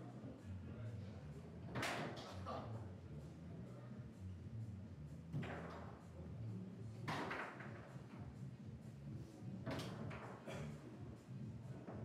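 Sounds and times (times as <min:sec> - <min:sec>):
foosball knocks and clatter: 0:07.1 - 0:07.6.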